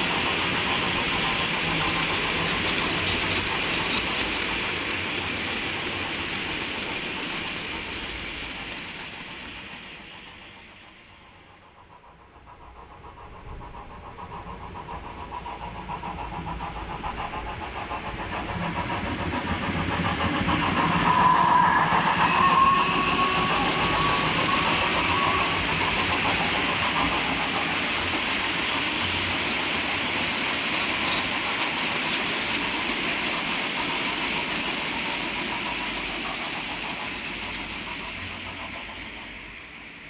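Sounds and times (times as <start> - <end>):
model train wagons clicking over rails: 0.0 - 11.0, 22.9 - 38.7
model locomotive running: 0.0 - 40.0.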